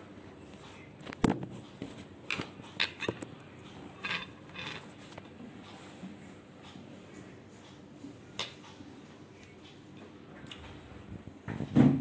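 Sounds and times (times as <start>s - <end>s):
metal spoon scraping a tub: 3.9s - 5.2s.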